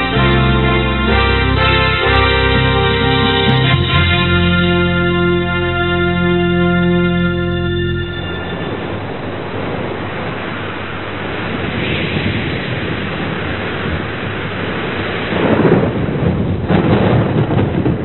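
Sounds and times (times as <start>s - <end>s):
rain hissing: 8.2s - 16.1s
thunder rumbling: 8.2s - 18.0s.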